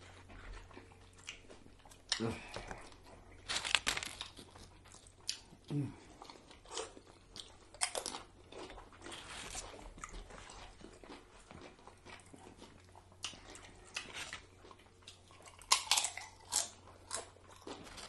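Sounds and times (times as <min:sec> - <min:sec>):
quiet chewing: 0:00.0 - 0:18.0
chips crunching: 0:02.0 - 0:05.5, 0:13.3 - 0:18.0.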